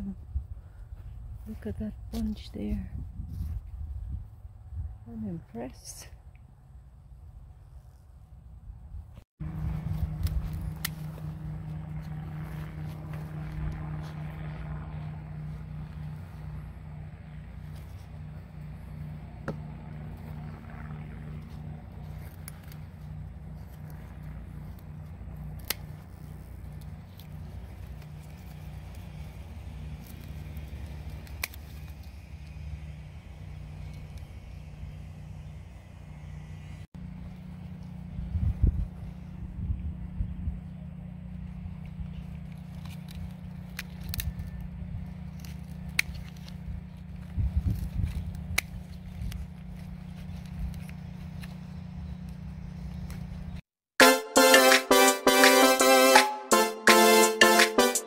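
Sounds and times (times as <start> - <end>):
pulsing low hum: 0.0 - 53.6
garden shears snipping stem: 1.6 - 2.7, 9.5 - 14.6, 21.6 - 33.0, 41.8 - 53.5.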